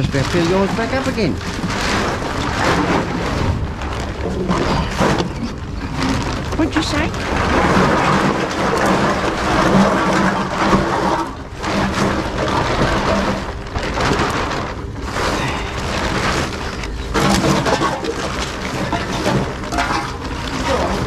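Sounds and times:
bottles and cans clattering: 0.0s - 21.0s
plastic bags crinkling: 0.0s - 21.0s.

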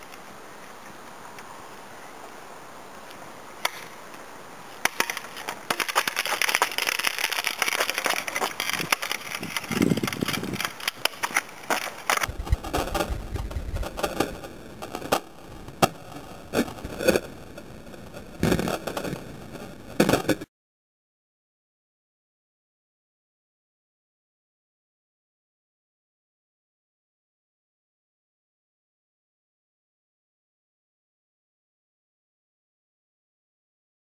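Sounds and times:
faint hiss: 0.0s - 20.4s
camera handling crackling and rubbing: 4.8s - 14.3s
low rumble: 12.3s - 18.4s.

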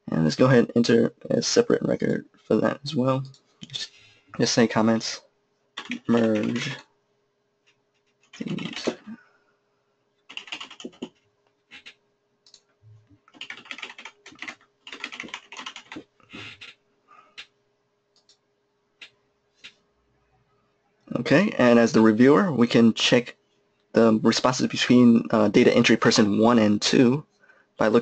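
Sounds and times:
keyboard typing: 5.8s - 6.8s, 8.2s - 9.1s, 10.3s - 12.6s, 13.3s - 16.8s.

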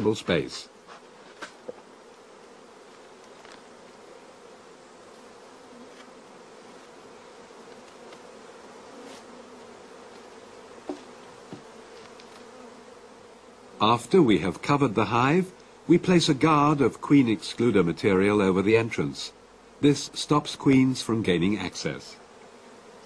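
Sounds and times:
honeybees humming: 0.0s - 23.0s
hive cover knocks: 10.8s - 11.7s.

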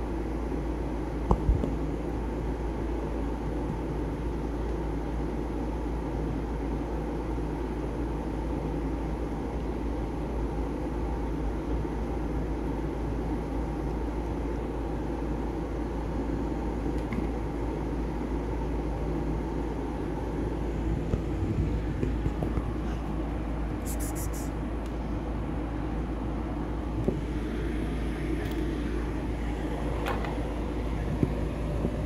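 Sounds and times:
low rumble and hum: 0.0s - 32.0s.

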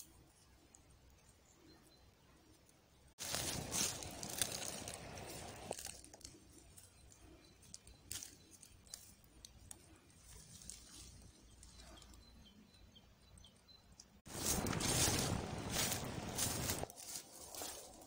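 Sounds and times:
loud steady rustling: 3.2s - 5.8s, 14.3s - 18.0s
herb stems rustling in basket: 3.2s - 6.9s, 7.6s - 11.7s, 14.3s - 18.0s.

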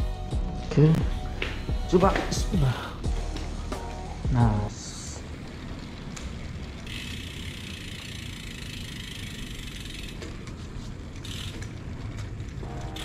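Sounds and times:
bicycle tyres rumbling on concrete: 1.1s - 13.0s
bicycle freewheel ticking: 4.1s - 13.0s.

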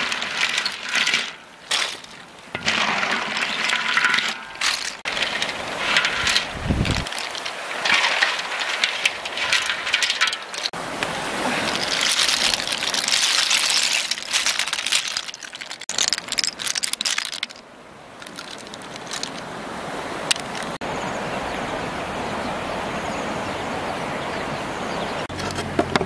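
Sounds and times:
snail shells clicking and clattering: 0.0s - 10.8s, 11.6s - 17.6s, 18.2s - 19.5s, 20.3s - 20.8s
steady rushing noise: 4.3s - 15.2s.

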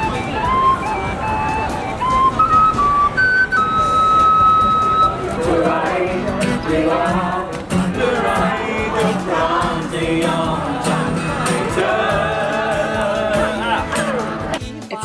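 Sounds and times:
acoustic guitar strumming: 0.0s - 14.8s
group of people singing: 5.3s - 14.7s.

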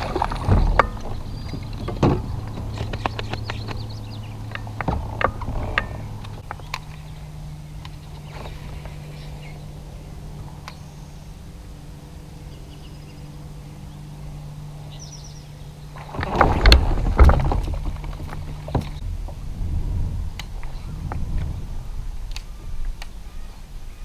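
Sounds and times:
kayak on calm water: 0.0s - 12.7s, 15.7s - 24.0s
bird chirping: 0.0s - 16.1s
low hum: 0.0s - 24.0s.

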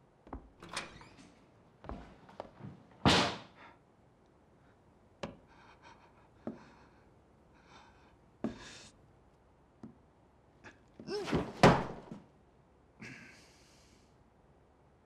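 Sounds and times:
door banging shut: 3.0s - 3.5s, 11.3s - 12.2s.

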